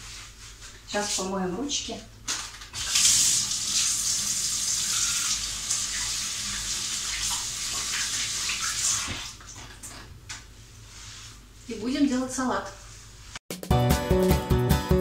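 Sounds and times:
tap water running: 0:02.7 - 0:10.1.

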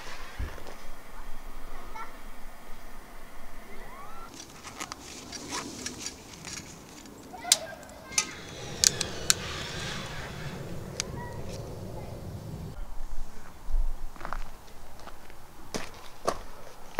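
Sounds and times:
soft hiss of candle lighting: 0:07.9 - 0:12.8.

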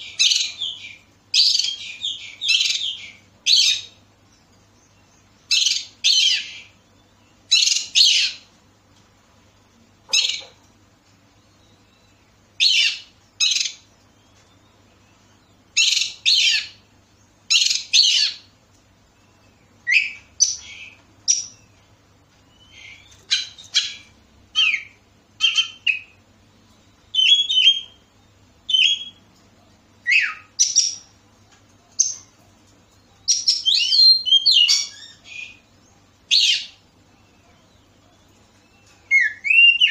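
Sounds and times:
magpie-robin calling: 0:00.0 - 0:04.0, 0:05.4 - 0:06.8, 0:07.5 - 0:08.5, 0:10.1 - 0:10.6, 0:12.6 - 0:13.9, 0:15.7 - 0:16.9, 0:17.5 - 0:18.5, 0:19.8 - 0:21.6, 0:22.5 - 0:26.2, 0:27.1 - 0:28.1, 0:28.7 - 0:29.2, 0:30.0 - 0:31.1, 0:33.2 - 0:35.7, 0:36.3 - 0:37.5, 0:38.1 - 0:39.9.

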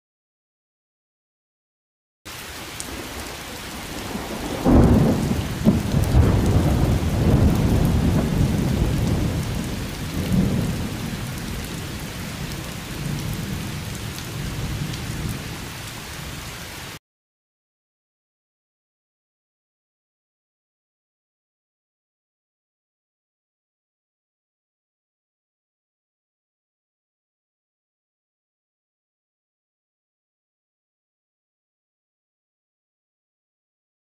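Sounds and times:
rain: 0:02.3 - 0:17.0
thunder rumble: 0:02.9 - 0:15.6.

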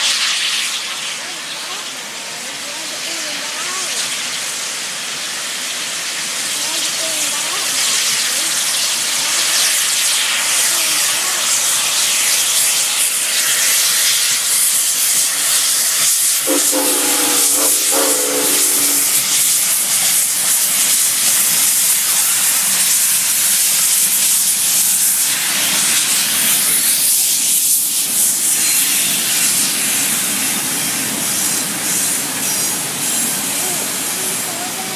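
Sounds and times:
steam locomotive hissing: 0:00.0 - 0:34.9
steam whistle chord: 0:16.5 - 0:19.5.

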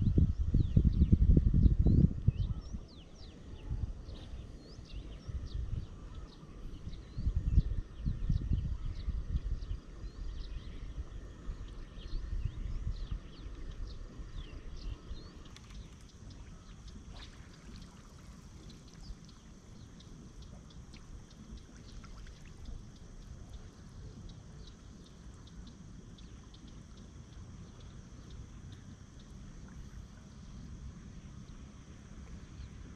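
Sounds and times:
faint high hum: 0:00.0 - 0:32.9
low rumble: 0:00.0 - 0:32.9
water trickling and sloshing: 0:09.3 - 0:32.9.

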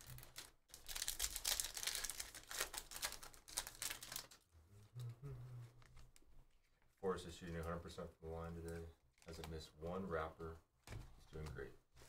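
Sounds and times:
foil wrapper crackling: 0:00.0 - 0:04.4.

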